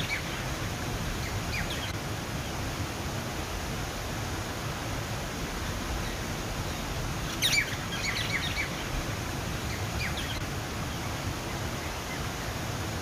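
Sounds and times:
birds chirping: 0:00.0 - 0:02.0, 0:05.6 - 0:12.6
waterfall splashing into pond: 0:00.0 - 0:13.0.

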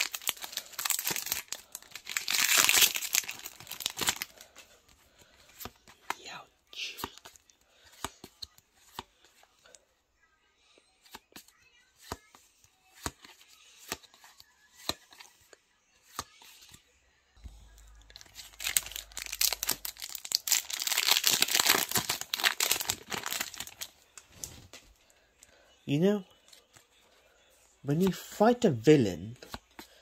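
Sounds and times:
foil wrapper tearing and crinkling: 0:00.0 - 0:04.4, 0:18.0 - 0:23.9
trading cards flipping: 0:00.0 - 0:06.2, 0:06.9 - 0:09.4, 0:11.0 - 0:12.2, 0:12.9 - 0:15.4, 0:17.4 - 0:24.9.

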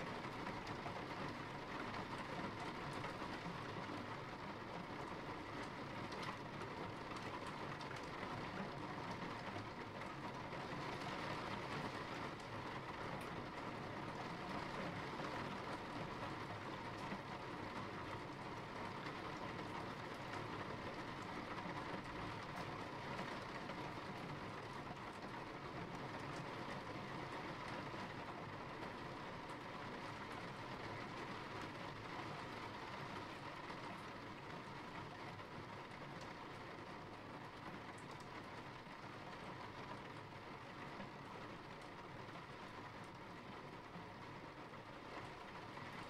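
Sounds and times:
steady rain falling: 0:00.0 - 0:46.0
raindrop ticks: 0:07.1 - 0:08.3, 0:37.9 - 0:38.4.

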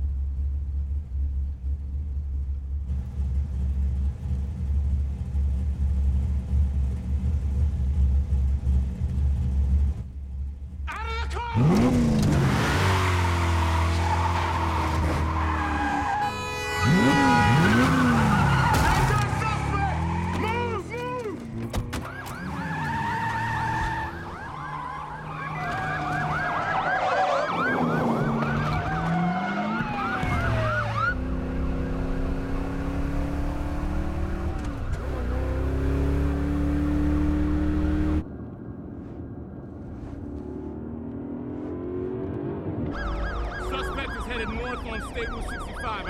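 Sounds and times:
car engine hum: 0:00.0 - 0:46.0
car engine revving hard: 0:11.6 - 0:15.3, 0:16.8 - 0:18.5, 0:29.6 - 0:38.2
police sirens wailing: 0:12.5 - 0:21.0, 0:21.9 - 0:32.8, 0:42.7 - 0:46.0.

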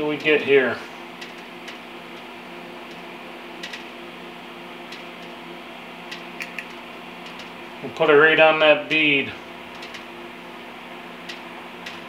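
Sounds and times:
welder humming: 0:00.0 - 0:12.0.

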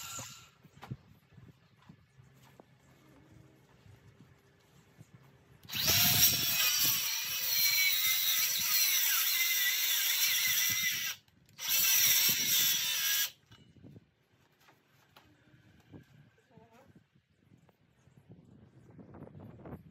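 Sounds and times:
circular saw cutting timber: 0:00.0 - 0:00.6, 0:05.6 - 0:13.4.

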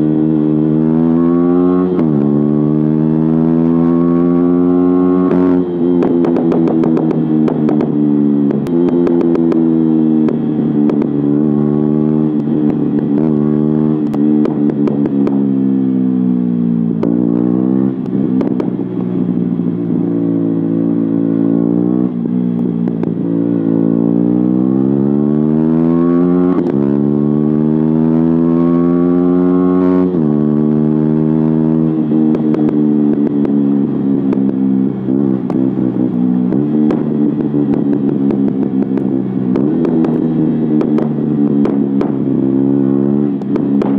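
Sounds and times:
motorcycle engine accelerating: 0:00.0 - 0:43.9.

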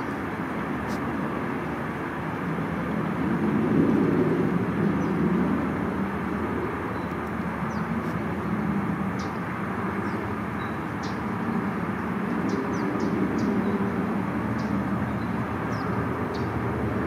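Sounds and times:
small birds chirping: 0:14.5 - 0:16.6.

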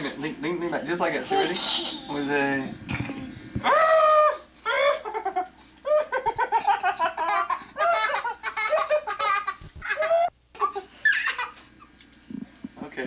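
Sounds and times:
young child giggling: 0:04.7 - 0:11.8.

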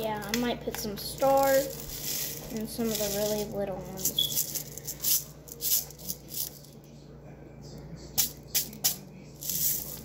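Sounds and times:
sprinkles rattling in shaker jar: 0:01.1 - 0:06.7, 0:08.2 - 0:10.0.

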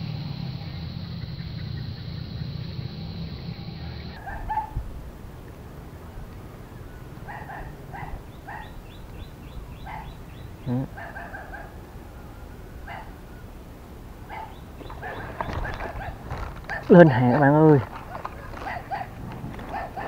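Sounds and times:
dog barking faintly: 0:03.8 - 0:04.8, 0:07.2 - 0:08.8, 0:09.8 - 0:11.8, 0:12.8 - 0:13.2, 0:14.3 - 0:20.0.

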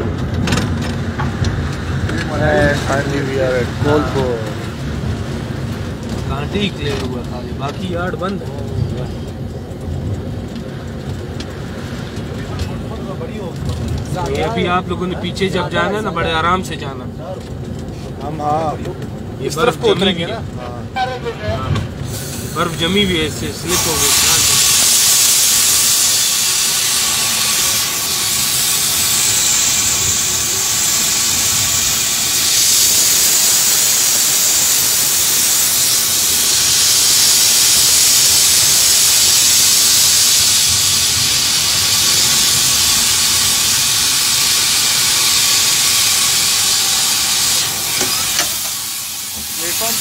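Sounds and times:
train running noise: 0:00.0 - 0:50.0
loud hiss in locomotive cab: 0:21.0 - 0:50.0.

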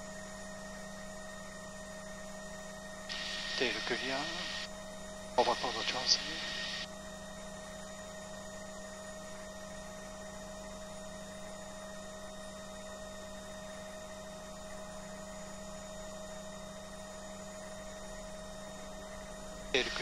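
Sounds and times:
helicopter cockpit hum: 0:03.1 - 0:06.9, 0:19.7 - 0:20.0.

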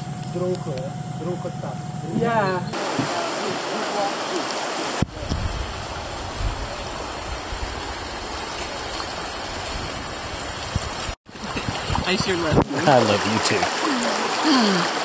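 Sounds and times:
river rapids rushing over rocks: 0:02.8 - 0:05.0.

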